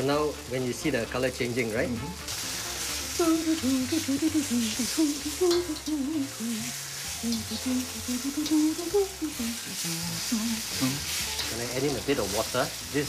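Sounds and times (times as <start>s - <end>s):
meat sizzling in a wok: 0.0s - 13.0s
low wandering tune: 2.0s - 12.1s
metal spatula stirring: 10.6s - 12.9s.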